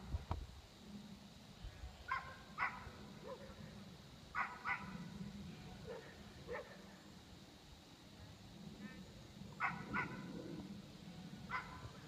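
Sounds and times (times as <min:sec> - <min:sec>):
dog barking faintly: 0:02.1 - 0:03.6.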